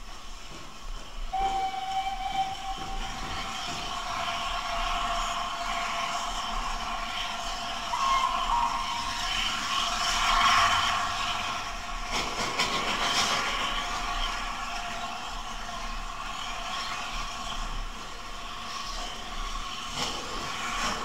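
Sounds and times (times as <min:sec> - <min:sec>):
steam hiss: 0:00.0 - 0:21.0
higher whistle: 0:01.3 - 0:04.0, 0:07.9 - 0:09.8
steam locomotive whistle: 0:01.3 - 0:06.4, 0:07.8 - 0:10.9.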